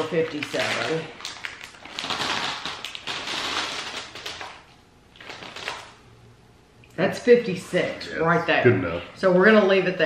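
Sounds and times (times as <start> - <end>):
popcorn rattling onto paper plate: 0.0 - 4.6
bag crinkling: 0.0 - 6.0.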